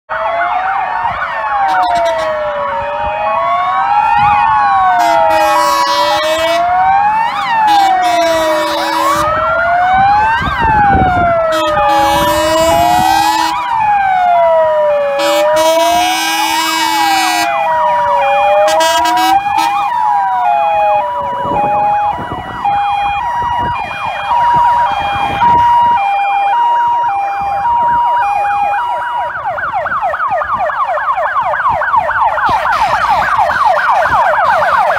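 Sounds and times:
fast yelping siren: 0:00.1 - 0:34.9
two-tone hi-lo siren: 0:00.1 - 0:34.9
wailing siren: 0:00.1 - 0:34.9
long horn blasts: 0:01.6 - 0:02.4, 0:04.9 - 0:06.8, 0:07.6 - 0:09.4, 0:11.4 - 0:13.7, 0:15.2 - 0:17.6, 0:18.4 - 0:19.9.

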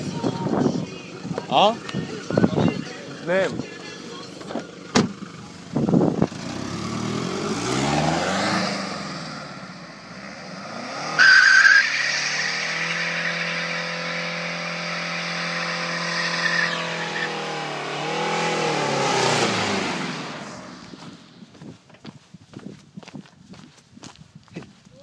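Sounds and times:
diesel engine revving: 0:04.4 - 0:21.3
tyres squealing: 0:14.9 - 0:17.5.

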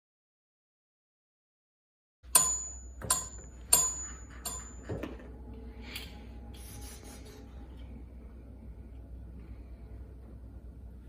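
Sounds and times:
steady low hum: 0:02.3 - 0:11.0.

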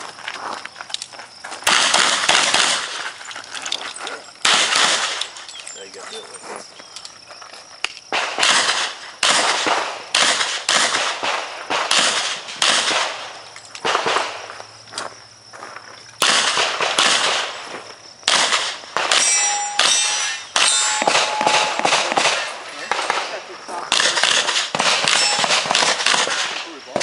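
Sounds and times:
revolver gunshots with echo: 0:04.4 - 0:05.3, 0:08.1 - 0:14.5, 0:16.2 - 0:17.6, 0:18.2 - 0:27.0.

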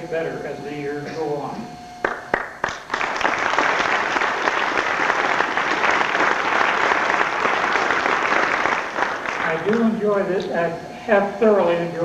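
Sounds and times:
audience applauding: 0:02.0 - 0:09.9.

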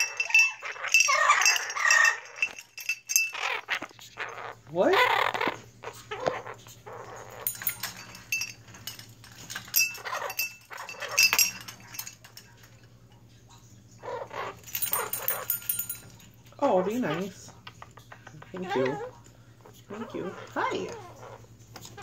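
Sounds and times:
parrot chattering squawks: 0:00.0 - 0:02.6, 0:03.2 - 0:08.0, 0:14.0 - 0:15.8, 0:16.6 - 0:22.0
metal bell toy jingling: 0:00.0 - 0:04.4, 0:07.1 - 0:12.5, 0:14.6 - 0:16.3.

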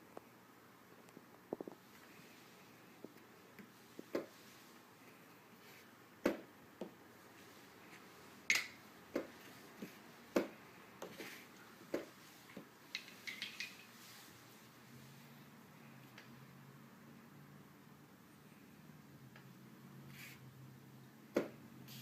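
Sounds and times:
chess pieces set down: 0:13.0 - 0:13.9.

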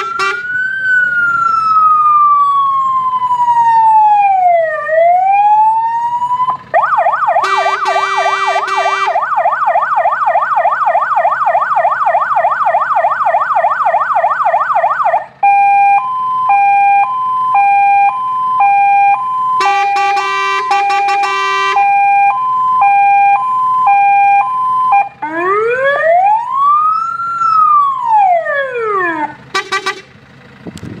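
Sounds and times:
short horn blips: 0:00.0 - 0:00.4, 0:07.4 - 0:09.2, 0:19.6 - 0:21.9, 0:29.5 - 0:30.1
fire engine electronic siren: 0:00.0 - 0:30.6
low rasping horn: 0:07.4 - 0:09.2, 0:19.6 - 0:21.8.

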